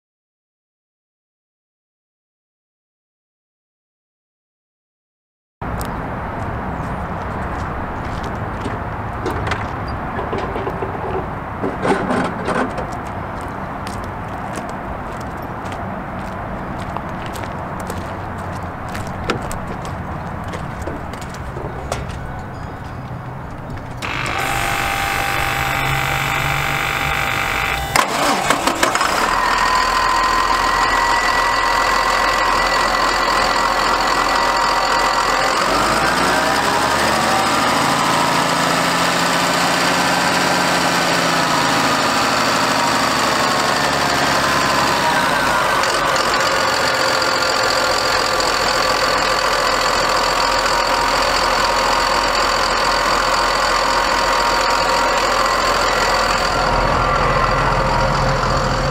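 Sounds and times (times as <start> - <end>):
diesel engine idling and revving: 5.7 - 58.9
starter motor cranking: 24.0 - 58.9.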